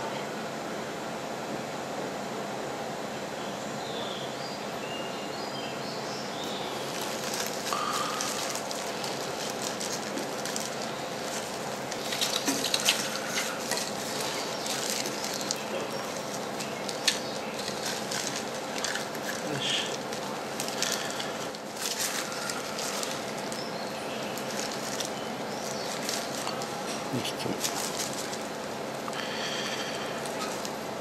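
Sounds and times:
steady background hum: 0.0 - 31.0
gloved hands crumbling substrate: 6.7 - 31.0.

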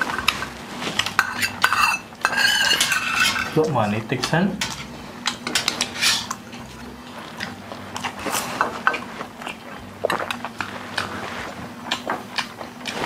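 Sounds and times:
chewing and biting food: 7.3 - 13.0.

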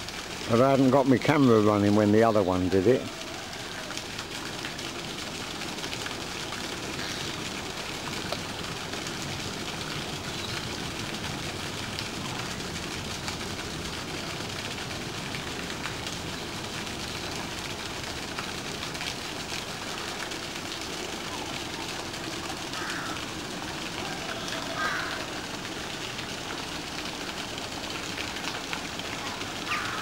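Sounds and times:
waterfall splashing into pond: 0.0 - 30.0.

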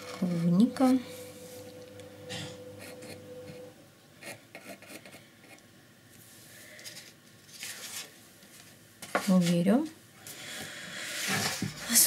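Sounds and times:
pencil scratching on wood: 4.2 - 5.6.

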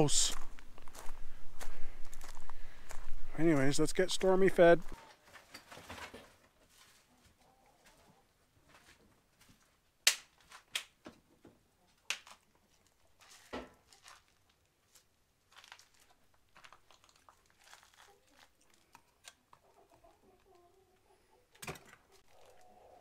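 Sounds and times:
crinkling and rustling: 4.8 - 9.7, 12.2 - 19.7, 21.6 - 22.9.

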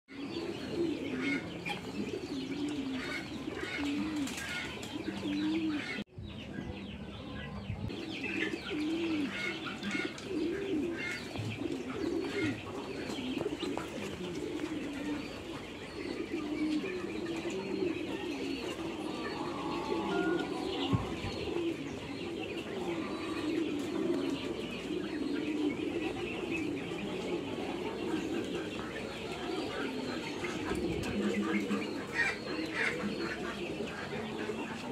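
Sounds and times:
low cooing calls: 0.1 - 34.9.

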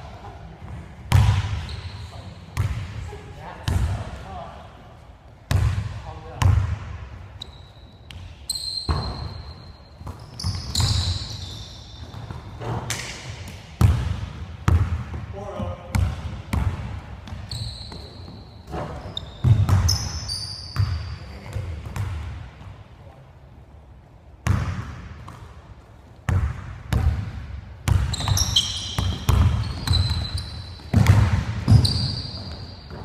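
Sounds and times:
sneakers squeaking on court: 0.1 - 4.0, 7.4 - 14.0, 15.9 - 22.3, 27.8 - 33.0
basketball bouncing on hardwood: 26.3 - 32.1.

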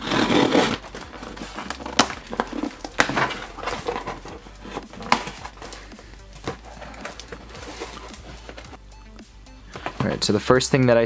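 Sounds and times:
scissors slitting packing tape: 0.0 - 5.8
tape and cardboard snapping: 0.0 - 5.8.

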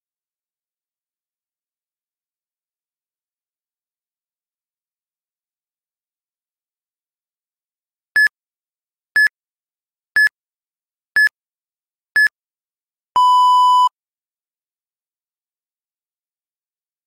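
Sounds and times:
longer lower beep: 13.2 - 13.9.

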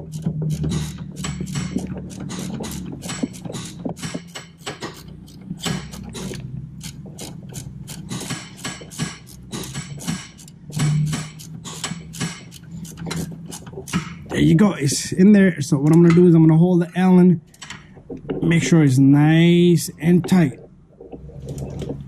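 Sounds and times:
ratcheting wrench clicking: 0.0 - 14.3.

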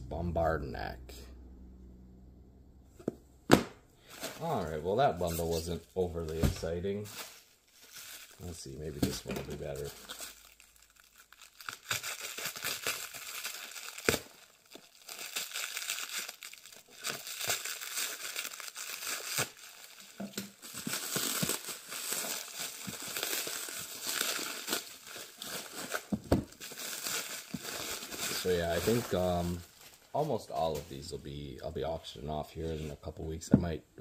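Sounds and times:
plastic wrap crinkling: 4.0 - 31.2.

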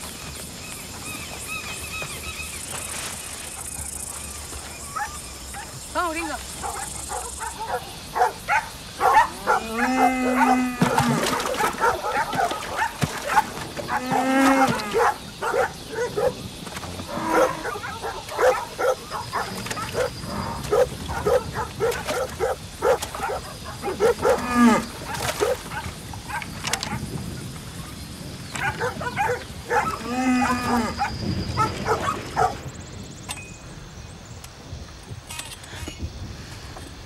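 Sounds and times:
dogs barking: 6.6 - 16.5, 17.2 - 27.0, 28.6 - 32.6
cow bellowing: 9.0 - 12.5, 29.2 - 32.5.

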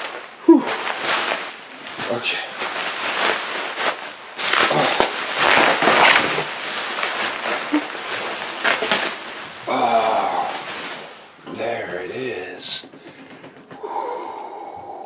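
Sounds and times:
bubble wrap crinkling: 0.0 - 11.4.

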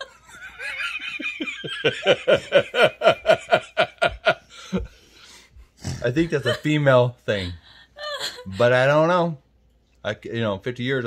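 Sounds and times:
person laughing: 0.0 - 5.0.

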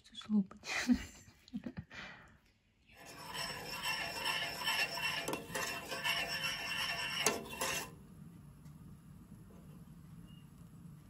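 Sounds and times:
spoon stirring thick mixture: 2.9 - 8.0.

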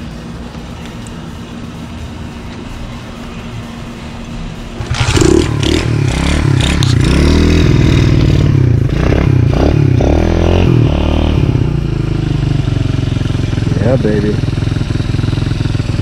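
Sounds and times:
dirt bike engine revving: 4.8 - 16.0.

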